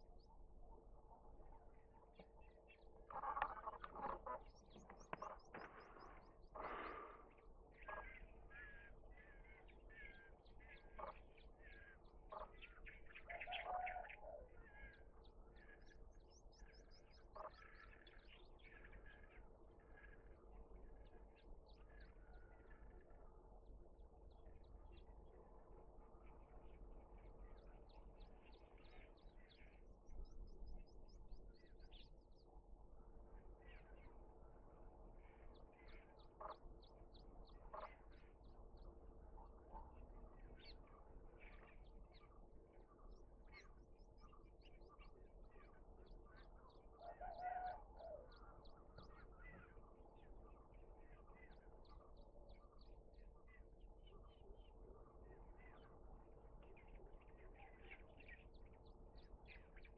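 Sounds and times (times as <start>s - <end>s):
faint steady hum: 0.0s - 59.9s
small birds chirping: 0.0s - 59.9s
lower bird call: 47.0s - 49.8s.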